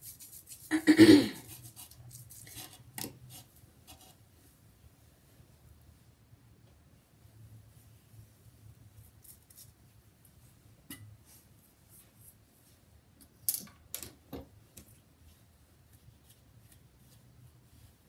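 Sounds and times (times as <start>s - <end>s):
light rustling of hair: 14.8s - 18.0s.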